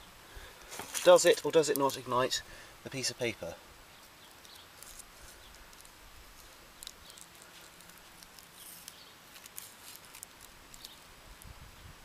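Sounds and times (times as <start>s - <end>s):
paper crackling and rustling: 0.7s - 2.1s, 4.4s - 11.1s.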